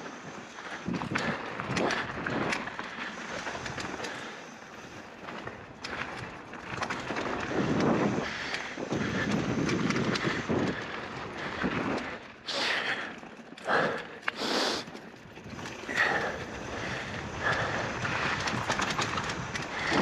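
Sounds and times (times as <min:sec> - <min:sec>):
bike chain and frame rattling: 0:00.0 - 0:20.0
bike tyres rolling over gravel: 0:00.0 - 0:20.0.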